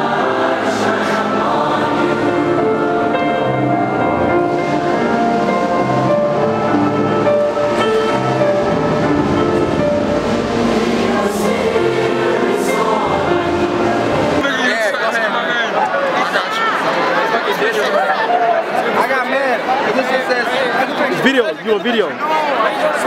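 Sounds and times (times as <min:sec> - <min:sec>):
large choir singing: 0:00.0 - 0:15.7.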